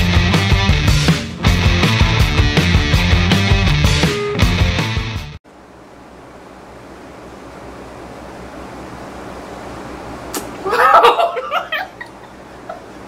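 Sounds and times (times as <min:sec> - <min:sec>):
rock music: 0:00.0 - 0:05.4
room hiss: 0:05.5 - 0:13.0
person laughing: 0:10.4 - 0:13.0.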